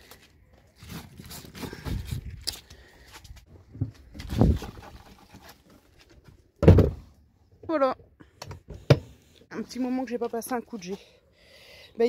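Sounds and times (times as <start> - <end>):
low thumps and knocks: 6.6 - 7.1.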